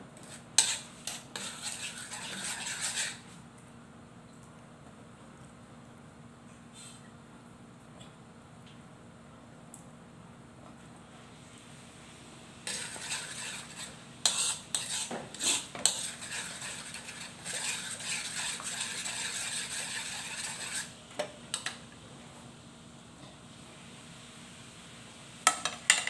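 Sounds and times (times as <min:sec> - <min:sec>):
metal spoon scraping a wok: 0:00.2 - 0:03.2, 0:12.6 - 0:21.0.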